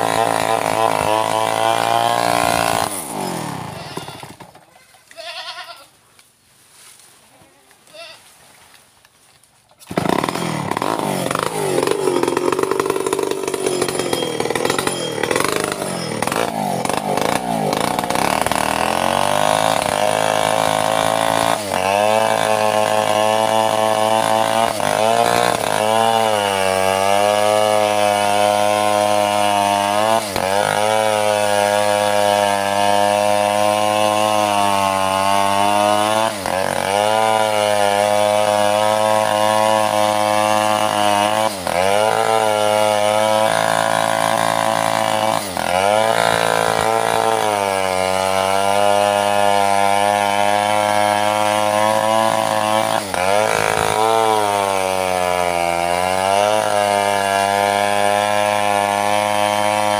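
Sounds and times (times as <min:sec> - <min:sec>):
chainsaw cutting log: 0:00.0 - 0:05.6, 0:09.8 - 0:59.9.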